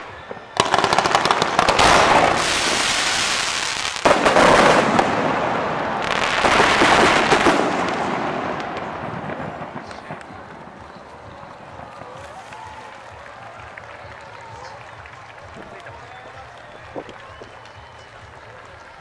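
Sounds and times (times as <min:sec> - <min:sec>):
fireworks bursting: 0:00.0 - 0:12.6.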